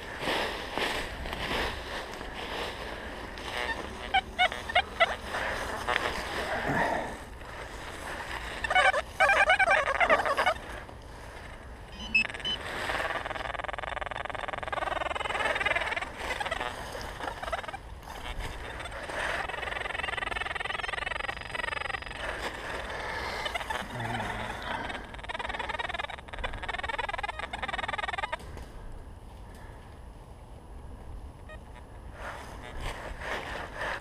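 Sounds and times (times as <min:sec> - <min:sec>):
pinpointer warbling tone: 0:11.9 - 0:12.6.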